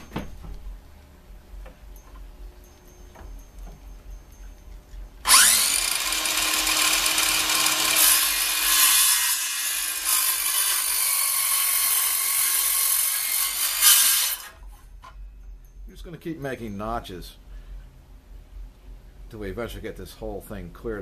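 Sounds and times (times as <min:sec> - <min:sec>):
cordless circular saw cutting wood: 0:05.2 - 0:14.6.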